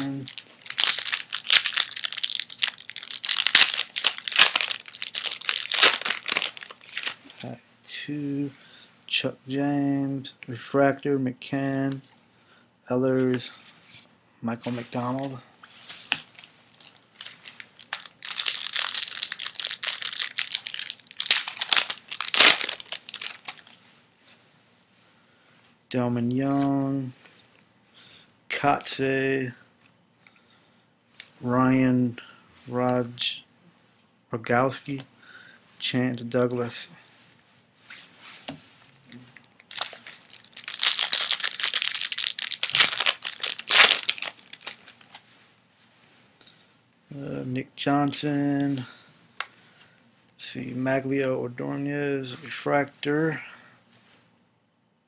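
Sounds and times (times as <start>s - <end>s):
foil wrapper crinkling and tearing: 0.0s - 7.5s, 15.9s - 23.7s, 39.4s - 45.2s.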